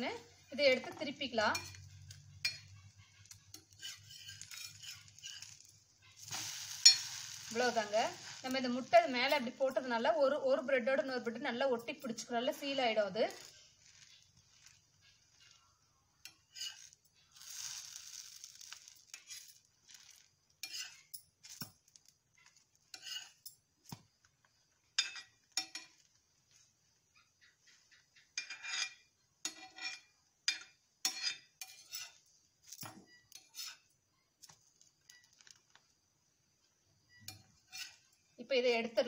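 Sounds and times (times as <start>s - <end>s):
metal spatula scraping pan: 0.0s - 10.0s, 12.6s - 23.5s, 25.0s - 26.1s, 28.2s - 33.9s, 37.1s - 38.2s
bread sizzling: 0.0s - 11.6s, 12.5s - 39.0s.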